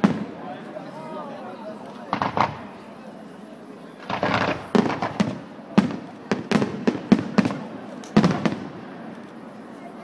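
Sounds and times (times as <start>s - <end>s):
fireworks bursting: 0.0s - 0.4s, 2.1s - 2.9s, 4.0s - 9.1s
sharp bangs and pops: 2.1s - 2.6s, 4.0s - 8.7s.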